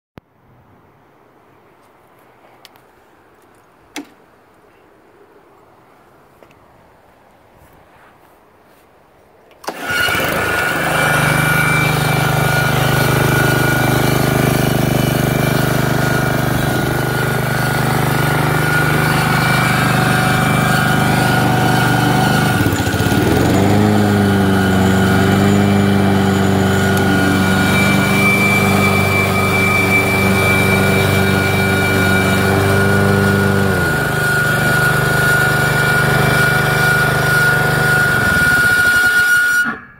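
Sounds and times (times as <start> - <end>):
lawn mower engine running: 9.6 - 39.8
deeper hum: 16.2 - 34.2
thin high whine: 24.4 - 33.9.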